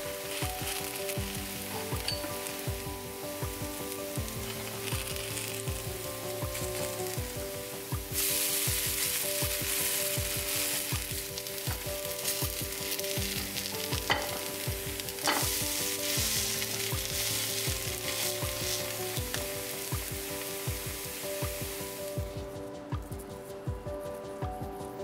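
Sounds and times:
pancakes sizzling in hot oil: 0:00.0 - 0:22.4.

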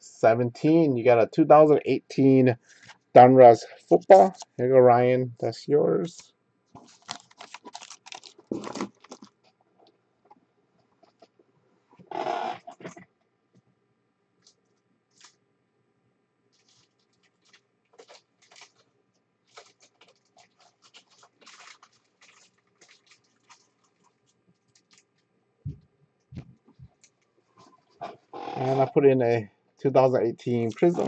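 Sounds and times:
foil wrappers crinkling: 0:06.8 - 0:09.5, 0:16.5 - 0:25.3.

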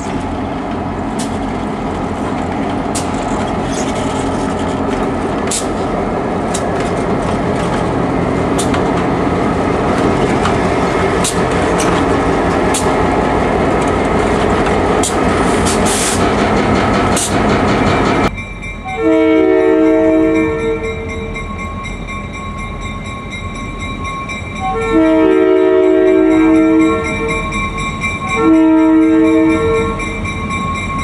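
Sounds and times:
diesel locomotive engine: 0:00.0 - 0:31.0
wheels clicking over rails: 0:00.1 - 0:18.3
locomotive air horn blasts: 0:19.0 - 0:21.1, 0:24.6 - 0:27.4, 0:28.4 - 0:30.0.

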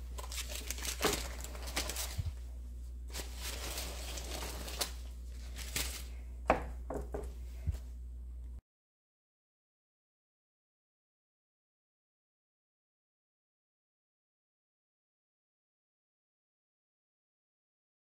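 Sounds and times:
baking paper rustling: 0:00.0 - 0:06.3
low steady hum: 0:00.0 - 0:08.6.

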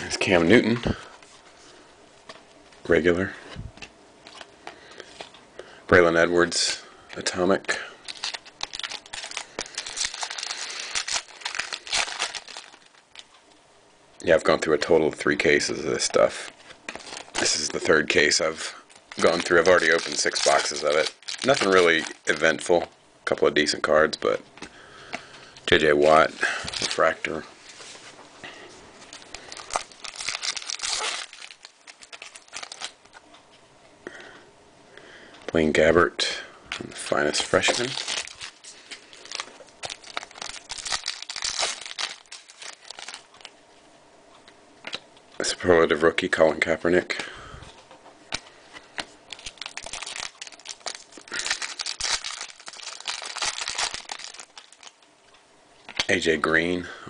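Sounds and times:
foil wrapper crinkling and tearing: 0:07.1 - 0:13.3, 0:16.9 - 0:22.7, 0:25.8 - 0:27.2, 0:29.0 - 0:33.2, 0:37.1 - 0:43.5, 0:49.3 - 0:55.0.

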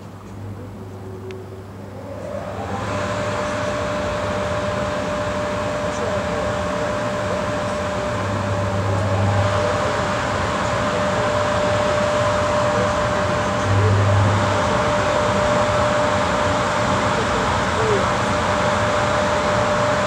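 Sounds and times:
low hum: 0:00.0 - 0:16.0
cooling blowers rushing: 0:00.0 - 0:20.0
high whine: 0:00.0 - 0:20.0.

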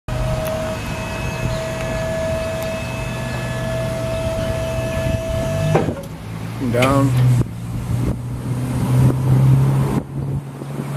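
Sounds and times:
hydraulic pump motor whining: 0:00.1 - 0:06.2
low hum: 0:00.1 - 0:08.8.

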